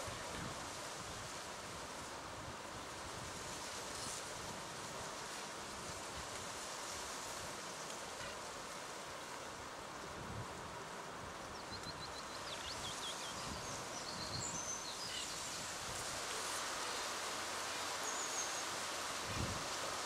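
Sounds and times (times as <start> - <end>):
wind rustling through reeds: 0.0 - 20.0
small birds chirping: 11.6 - 15.7.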